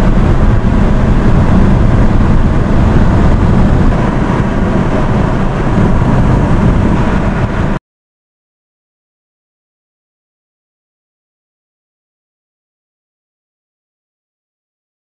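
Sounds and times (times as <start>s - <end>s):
dense low rumbling: 0.0s - 7.8s.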